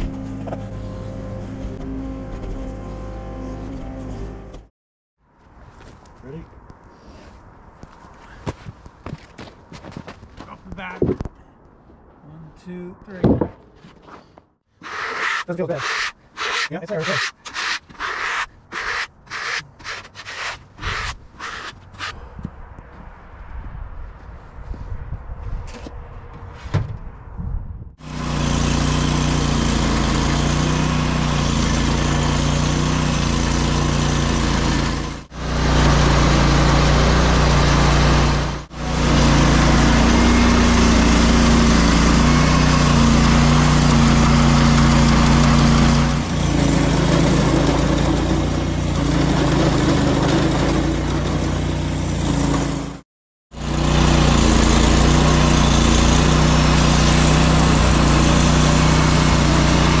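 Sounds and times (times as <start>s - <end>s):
band blade sawing log: 14.8s - 22.3s, 28.0s - 53.0s, 53.6s - 60.0s
bandsaw mill engine running: 28.0s - 53.0s, 53.6s - 60.0s.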